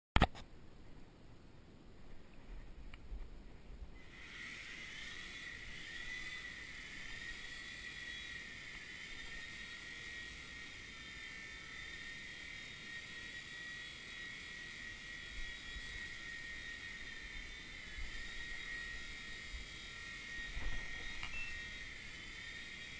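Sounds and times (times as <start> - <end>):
toy helicopter rotor whining: 4.0 - 22.9.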